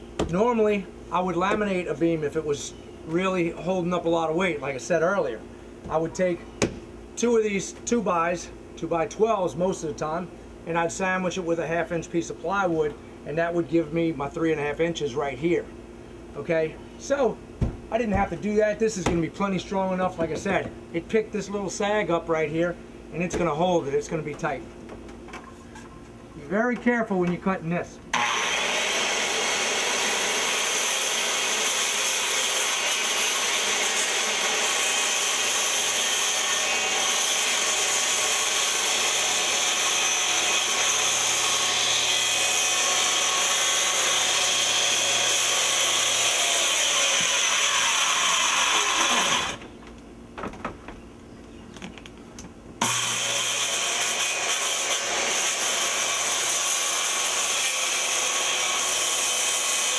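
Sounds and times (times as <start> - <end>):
circular saw cutting siding: 28.1 - 49.8, 52.8 - 59.9.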